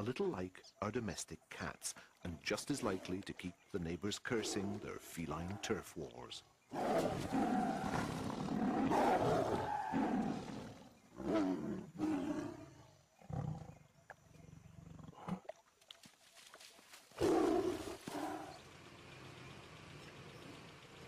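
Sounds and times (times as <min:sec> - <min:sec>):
tiger roaring and snarling: 0:04.3 - 0:05.8, 0:06.7 - 0:15.5, 0:17.2 - 0:18.6.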